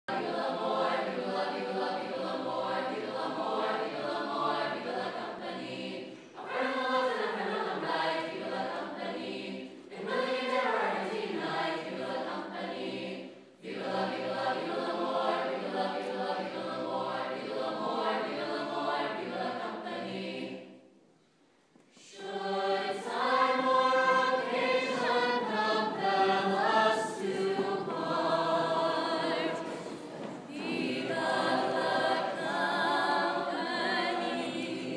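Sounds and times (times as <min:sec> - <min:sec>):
choir singing: 0:00.0 - 0:21.1, 0:21.9 - 0:34.9.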